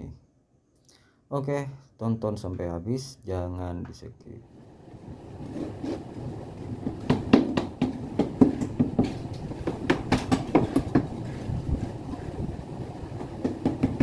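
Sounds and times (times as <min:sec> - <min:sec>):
hoe scraping in wheelbarrow: 0:05.3 - 0:12.5.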